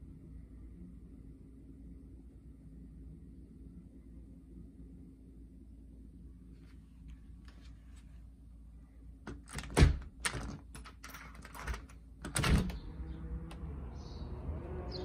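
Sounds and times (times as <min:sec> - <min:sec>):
steady outdoor hum: 0:00.0 - 0:10.2
door lock clicking and clunking: 0:09.3 - 0:13.0
door clunking open: 0:09.3 - 0:13.7.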